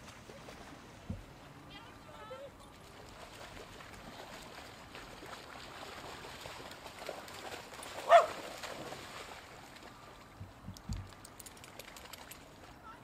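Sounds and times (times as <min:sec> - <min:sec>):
faint outdoor background: 0:00.0 - 0:08.7, 0:09.3 - 0:13.0
dog barking: 0:08.0 - 0:08.4.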